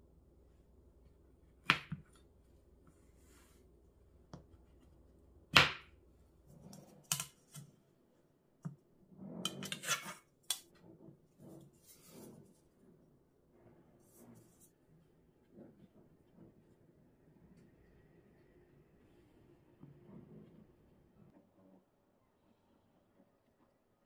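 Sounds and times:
knife scraping along ruler: 9.3s - 10.3s, 11.4s - 12.6s.

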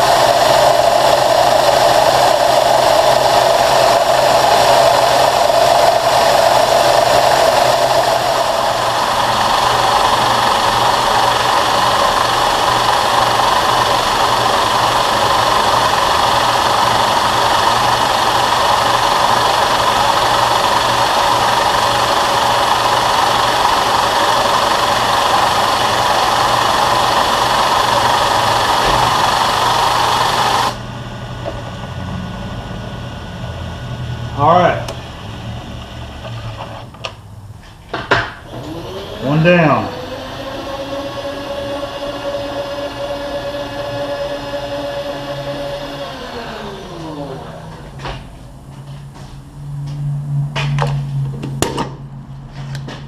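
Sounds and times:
compressed air hissing: 0.0s - 30.8s
milling machine cutting steel: 0.0s - 30.9s, 38.5s - 47.7s
machine motor hum: 0.0s - 37.2s, 38.4s - 52.0s.

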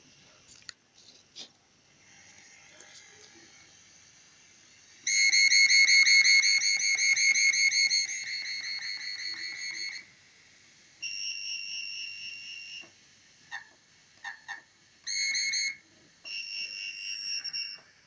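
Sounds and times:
high electronic tones: 5.1s - 10.1s.

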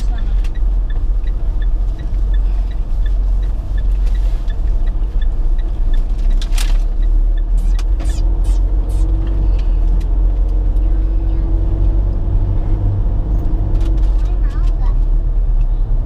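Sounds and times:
car engine and tyre rumble: 0.0s - 16.0s
brief hisses: 7.6s - 9.2s.

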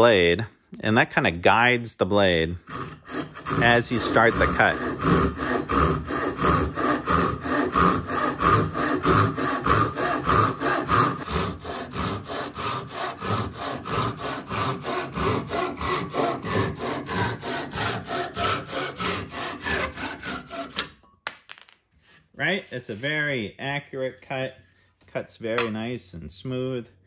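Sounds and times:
hand saw cutting wood: 2.6s - 21.0s.

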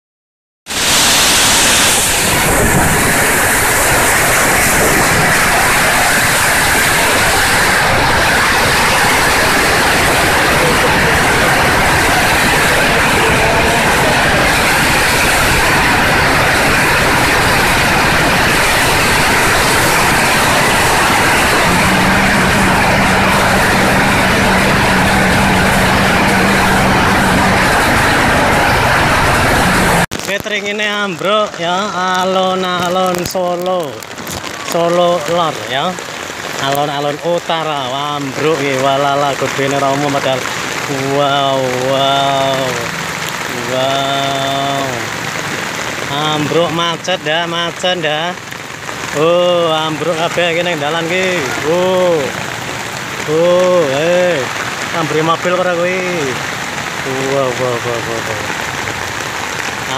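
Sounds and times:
strong wind: 0.7s - 30.2s
torrential rain: 0.7s - 59.9s.

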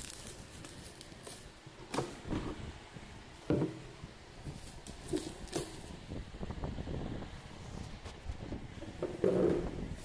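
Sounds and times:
plastic chair knocking: 3.5s - 3.8s.

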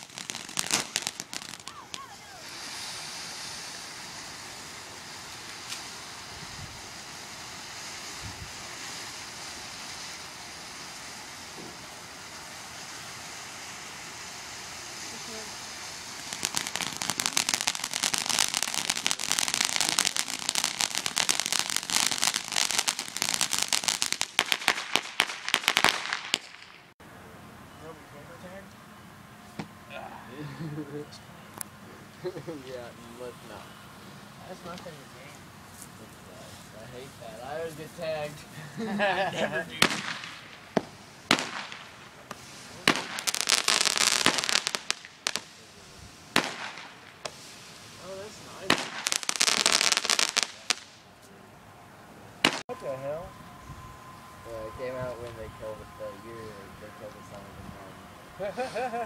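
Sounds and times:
rapid crackling pops: 0.0s - 2.8s, 39.8s - 45.6s, 46.3s - 47.6s
firework fountain crackling: 0.0s - 27.0s, 30.6s - 51.1s, 52.4s - 53.3s, 54.4s - 59.0s.

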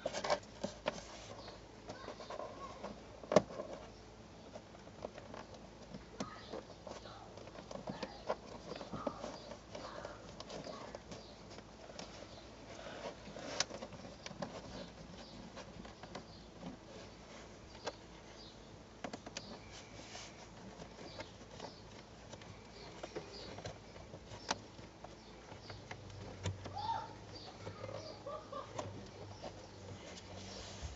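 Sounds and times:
faint bird chirps: 19.3s - 30.9s.

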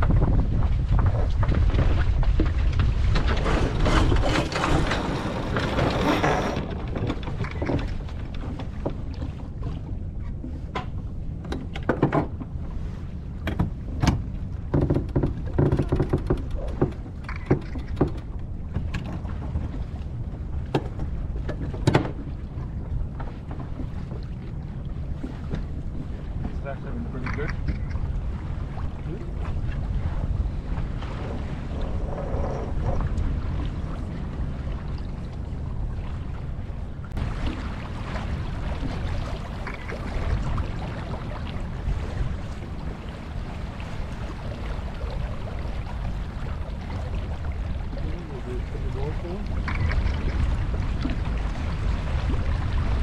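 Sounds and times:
water noise: 0.0s - 53.0s
wind buffeting microphone: 0.0s - 53.0s
sharp knocks and clicks: 10.7s - 12.5s, 13.4s - 19.7s, 20.6s - 22.2s.

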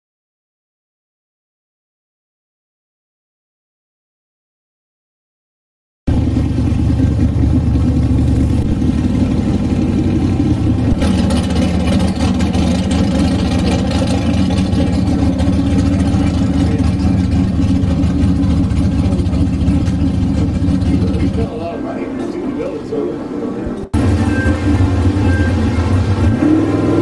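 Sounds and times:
race car engines rumbling: 6.1s - 27.0s.

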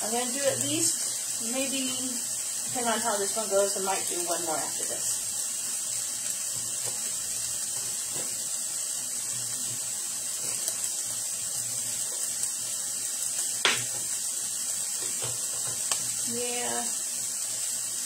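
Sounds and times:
food sizzling in a frying pan: 0.0s - 18.0s
knife tapping on cutting board: 13.6s - 13.9s
sharp knock: 13.6s - 13.9s.

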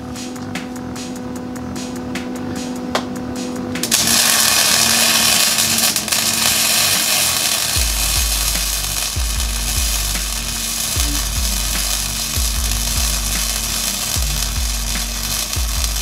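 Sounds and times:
angle grinder cutting steel: 3.8s - 16.0s.

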